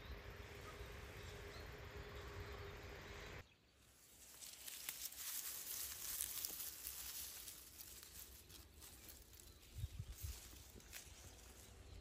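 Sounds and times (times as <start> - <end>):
soft ticks and rustles: 4.0 - 12.0.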